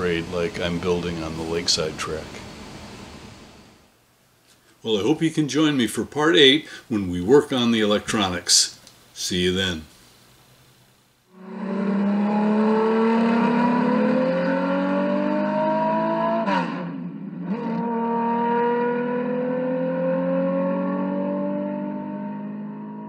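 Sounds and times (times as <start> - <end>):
racing car engine accelerating: 11.4 - 23.0.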